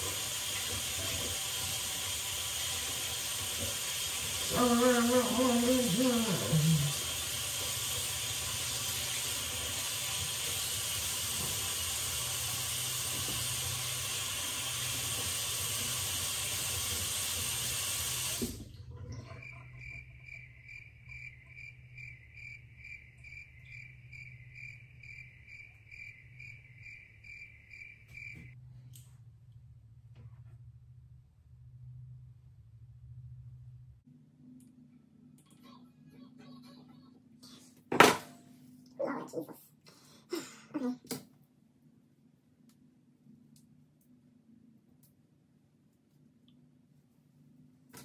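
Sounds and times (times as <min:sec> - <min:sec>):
water running from sink faucet: 0:00.0 - 0:19.8.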